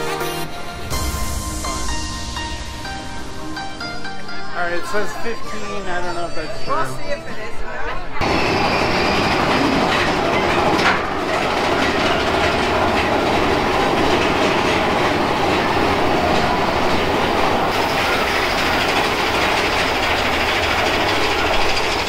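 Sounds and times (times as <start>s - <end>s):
roller coaster cars on track: 8.0s - 22.0s.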